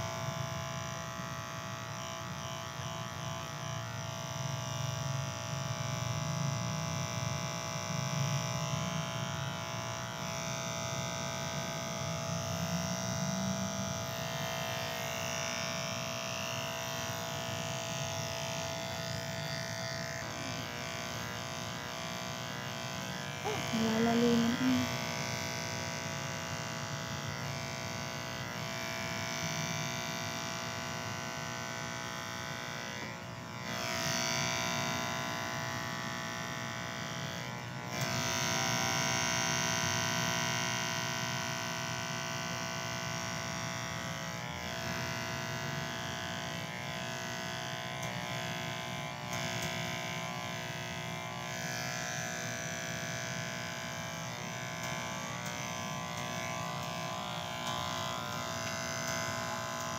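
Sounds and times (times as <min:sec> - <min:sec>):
electric hair clippers buzzing: 0:00.0 - 0:59.9.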